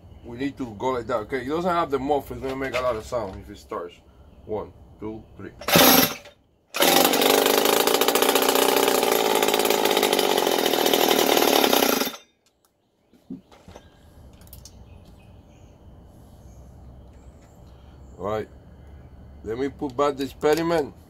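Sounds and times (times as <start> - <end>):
cut-off saw engine pull-started: 5.6 - 12.2
loud two-stroke engine running: 5.6 - 12.2.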